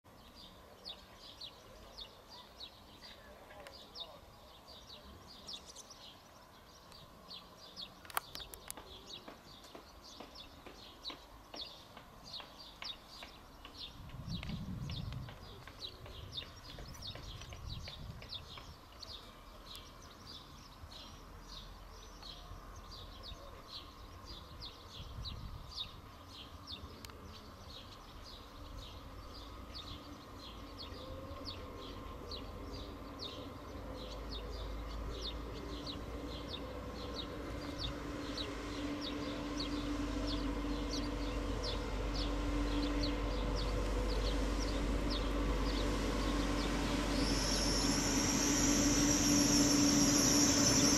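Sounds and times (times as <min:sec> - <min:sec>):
electric train rumbling: 0:04.0 - 0:50.9
steady hum: 0:35.6 - 0:50.9.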